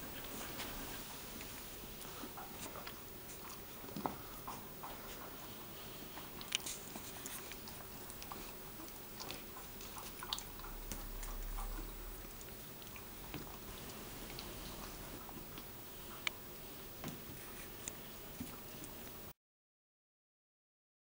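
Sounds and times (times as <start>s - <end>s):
puppies mouthing clicks and snaps: 1.4s - 13.6s.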